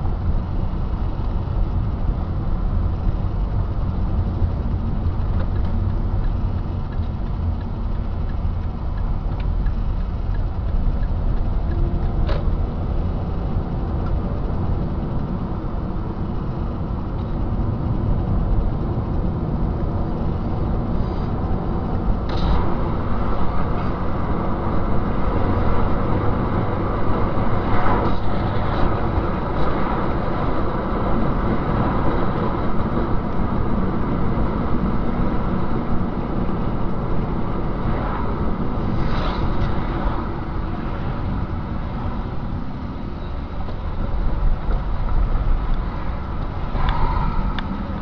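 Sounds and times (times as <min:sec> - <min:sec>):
car road and engine noise: 0:00.0 - 0:48.0.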